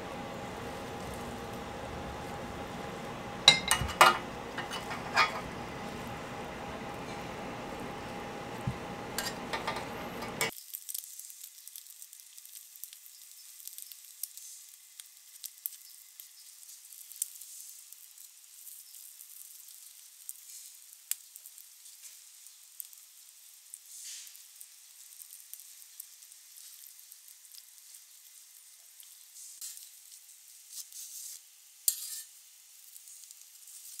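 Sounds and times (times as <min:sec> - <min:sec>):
food sizzling on a griddle: 0:00.0 - 0:34.0
clattering: 0:03.5 - 0:05.5, 0:09.2 - 0:10.5.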